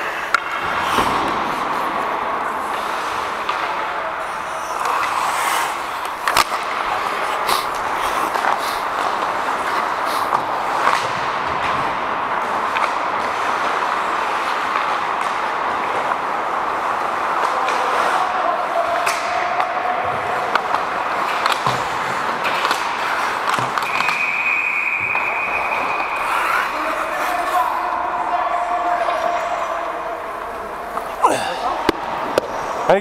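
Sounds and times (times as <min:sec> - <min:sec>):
skates scraping on ice: 0:00.0 - 0:32.9
hockey sticks and puck clacking: 0:00.0 - 0:33.0.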